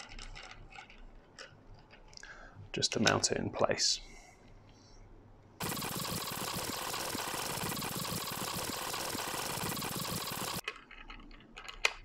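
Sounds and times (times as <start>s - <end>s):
screwdriver whirring and rattling: 5.6s - 10.9s.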